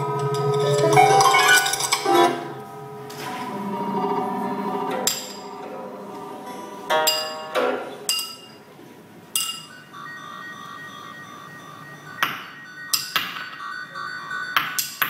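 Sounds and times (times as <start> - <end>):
plucked and struck notes: 0.0 - 8.6.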